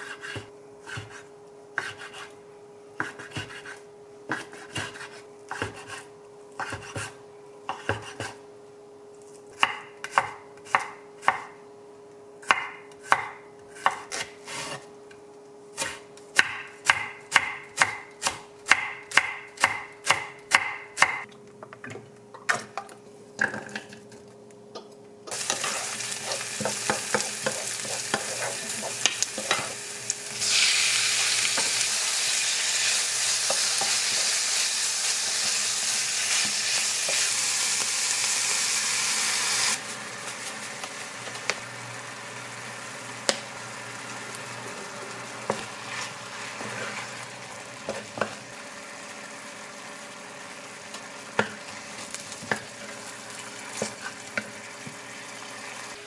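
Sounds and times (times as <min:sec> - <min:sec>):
knife chopping on cutting board: 0:00.0 - 0:02.3, 0:03.0 - 0:06.0, 0:06.6 - 0:08.4, 0:09.6 - 0:11.5, 0:12.4 - 0:14.8, 0:15.8 - 0:21.3
sizzling in frying pan: 0:25.3 - 0:56.0.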